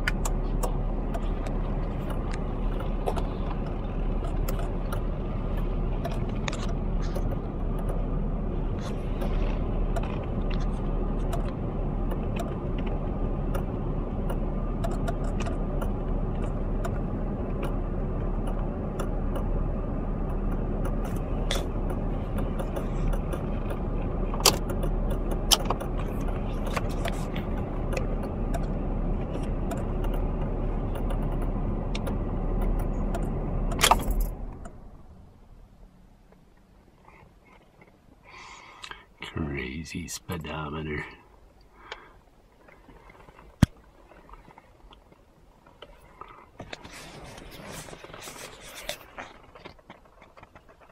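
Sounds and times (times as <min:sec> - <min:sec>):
sharp clicks and rattles: 0:00.0 - 0:08.1, 0:08.7 - 0:19.6, 0:20.2 - 0:34.9
car engine and road noise: 0:00.0 - 0:50.9.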